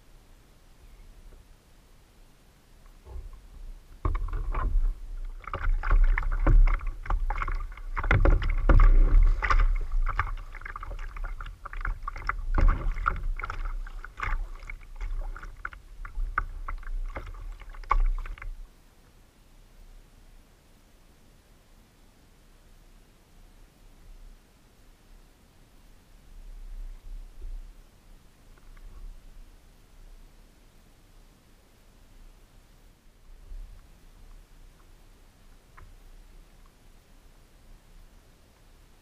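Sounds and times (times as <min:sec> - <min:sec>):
low rumble: 0:03.0 - 0:18.7
water slapping along hull: 0:03.0 - 0:18.7
paddle strokes splashing: 0:03.1 - 0:18.6.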